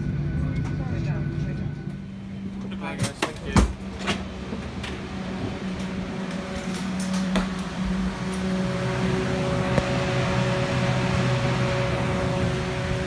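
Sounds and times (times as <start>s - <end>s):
ventilation hum: 0.0s - 13.0s.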